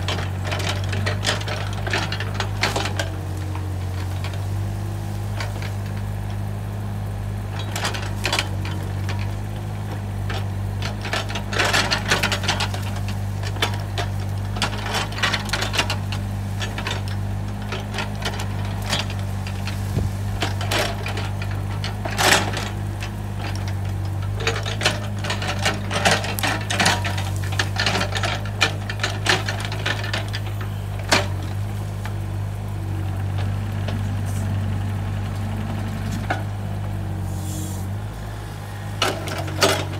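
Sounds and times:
diesel engine running: 0.0s - 39.9s
excavator bucket cracking roots: 7.5s - 37.2s, 37.9s - 39.9s.

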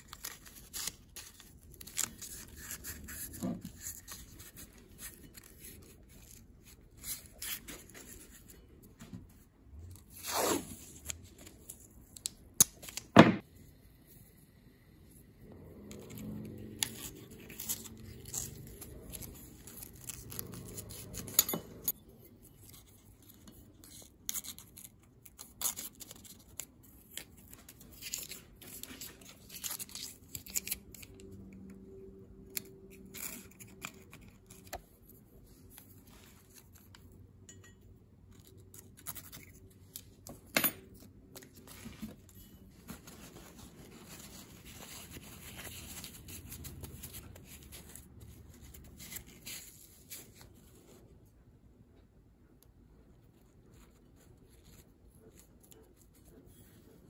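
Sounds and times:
tape being pulled and torn: 10.0s - 13.2s.

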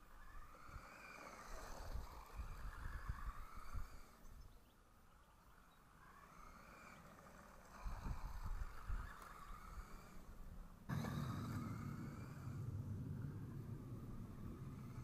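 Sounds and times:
toy car electric motor whining: 0.0s - 4.6s, 5.4s - 15.0s
low rumble: 10.9s - 15.0s.

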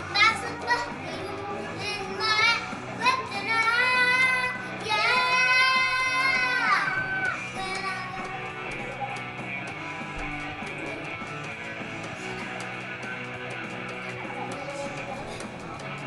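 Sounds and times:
child singing high notes: 0.1s - 8.4s
guitar music with steady beat: 4.5s - 16.0s.

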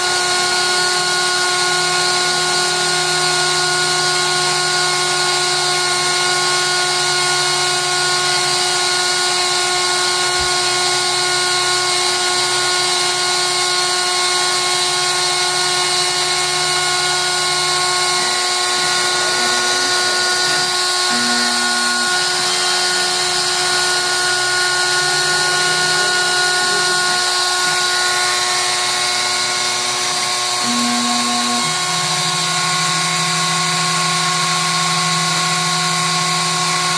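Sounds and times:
rotary tool whining cutting wood: 0.0s - 36.9s
lower tones changing pitch: 15.9s - 29.1s, 30.4s - 35.1s.

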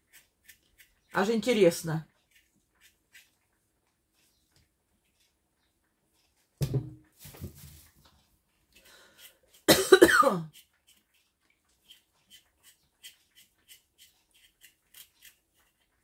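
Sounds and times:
person coughing: 9.7s - 10.5s.

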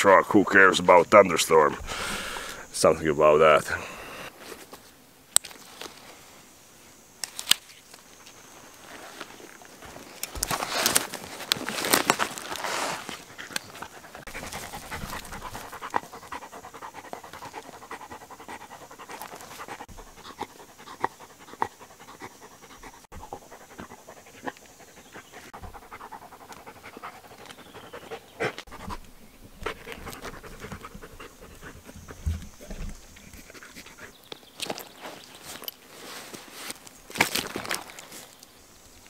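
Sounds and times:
dog panting hard: 13.2s - 29.0s, 29.6s - 32.7s.

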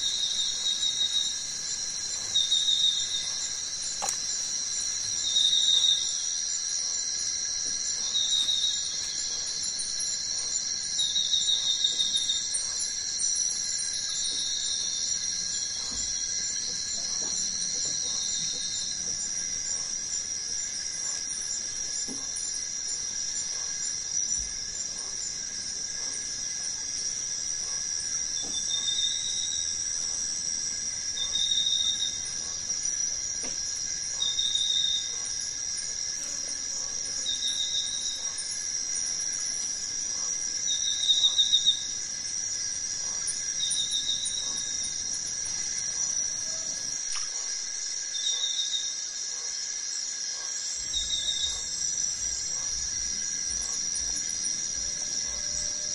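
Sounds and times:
insect pulsed chirping call: 0.0s - 55.9s
insects buzzing high-pitched: 0.0s - 55.9s.

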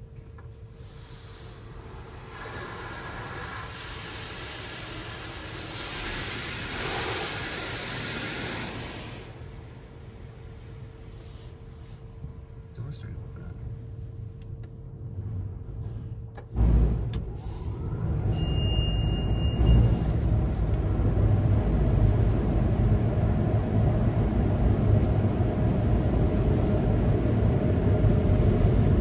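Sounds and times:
car wash dryer blowers rushing air: 0.0s - 29.0s
short high beep: 18.3s - 20.1s.

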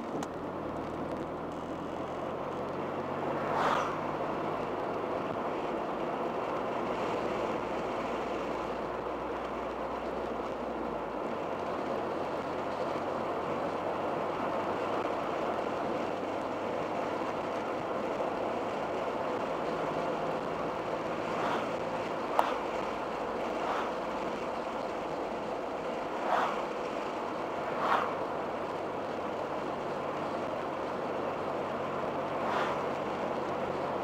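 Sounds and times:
car engine cruising: 0.0s - 34.0s
tyre and wind hiss: 3.1s - 34.0s.

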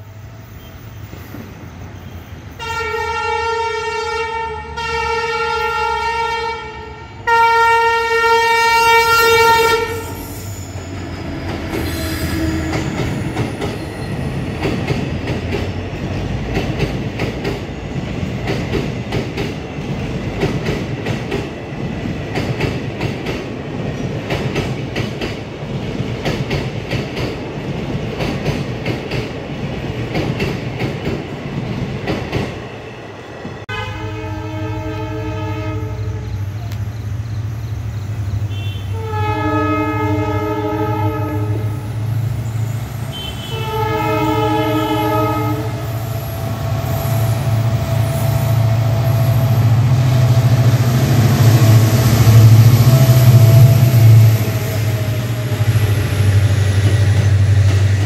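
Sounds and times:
train rumbling on track: 0.0s - 58.0s
train horn blasts: 2.6s - 10.4s, 11.8s - 13.0s, 33.7s - 36.8s, 38.4s - 42.2s, 43.0s - 46.4s.

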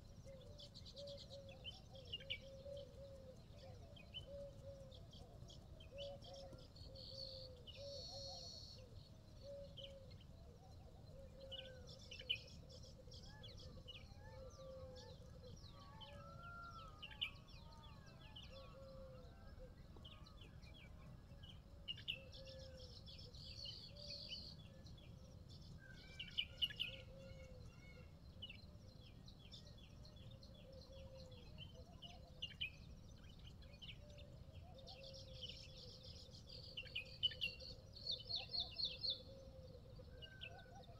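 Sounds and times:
small birds chirping: 0.0s - 15.6s.

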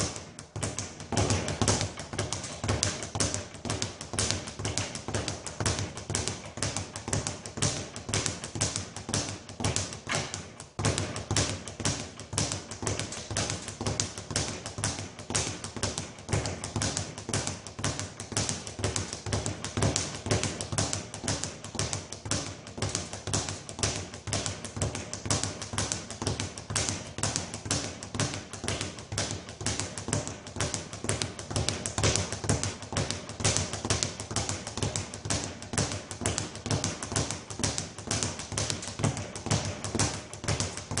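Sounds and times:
speed bag rattling: 0.0s - 41.0s.

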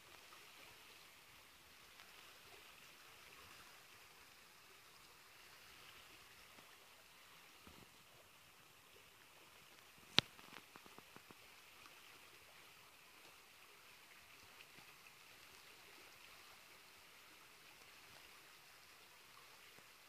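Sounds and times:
faint small ticks: 0.0s - 1.0s, 1.7s - 4.4s, 6.4s - 6.8s, 9.4s - 16.7s, 17.7s - 20.0s
faint steady hiss: 0.0s - 20.0s.

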